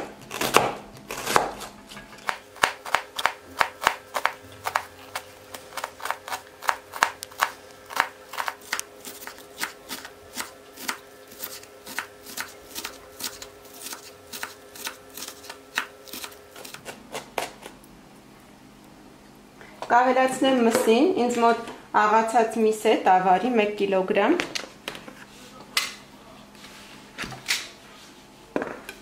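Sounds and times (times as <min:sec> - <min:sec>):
knife chopping on wooden board: 0:00.0 - 0:17.8.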